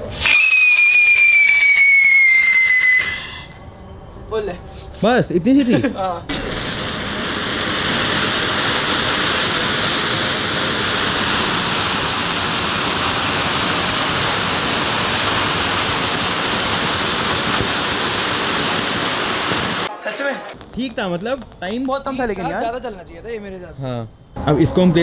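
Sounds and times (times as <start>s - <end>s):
firework fountain hissing: 0.0s - 3.5s, 6.3s - 22.9s.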